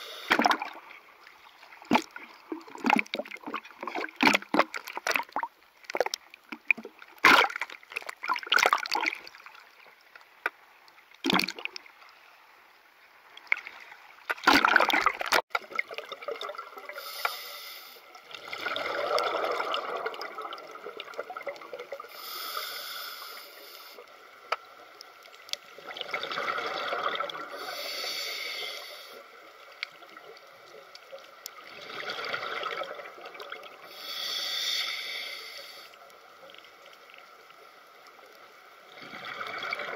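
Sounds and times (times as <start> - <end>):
regulator breathing hiss: 0.0 - 0.4, 17.0 - 18.2, 22.1 - 24.1, 27.5 - 29.3, 33.9 - 36.0
underwater bubbling: 0.0 - 10.1, 13.2 - 39.9.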